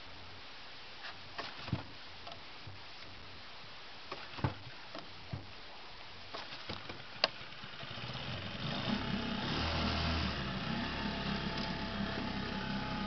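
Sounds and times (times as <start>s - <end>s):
outboard motor idling: 6.7s - 13.0s.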